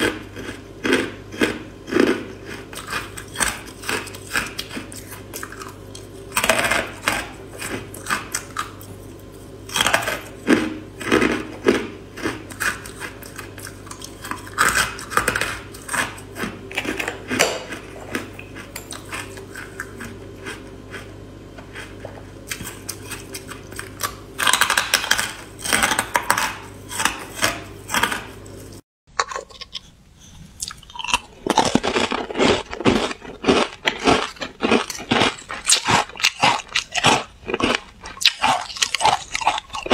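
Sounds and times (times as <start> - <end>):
crunching ice: 30.6 - 39.9.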